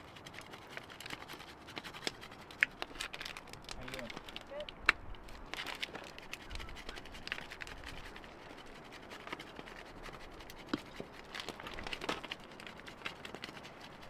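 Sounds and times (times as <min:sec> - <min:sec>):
cheese grating on metal grater: 0:00.0 - 0:04.2.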